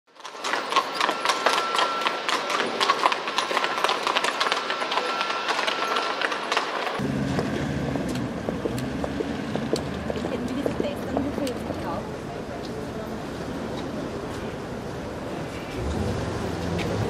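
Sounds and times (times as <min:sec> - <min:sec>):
horse hooves clip-clopping: 0:00.1 - 0:12.9.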